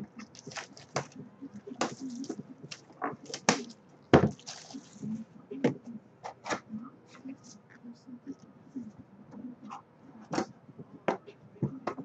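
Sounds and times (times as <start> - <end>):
plastic shrink-wrap crinkling: 0.2 - 1.2, 4.3 - 5.1.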